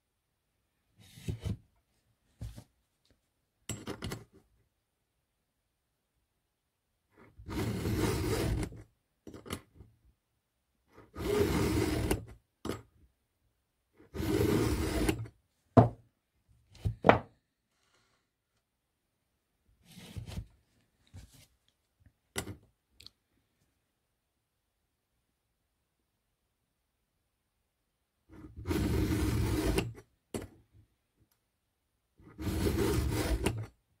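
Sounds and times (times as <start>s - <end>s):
file rasping on saw chain: 7.5s - 8.7s, 11.2s - 12.2s, 14.2s - 15.3s, 28.6s - 29.9s, 32.4s - 33.7s.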